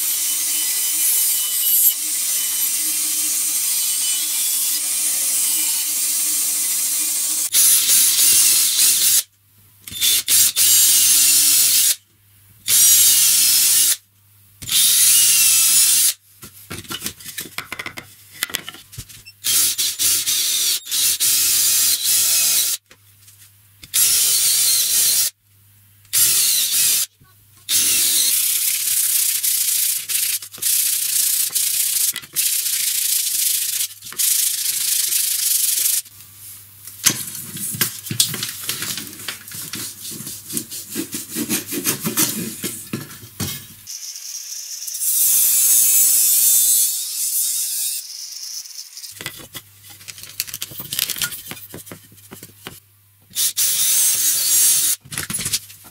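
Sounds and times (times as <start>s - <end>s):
sandpaper scratching on wood: 39.7s - 42.7s.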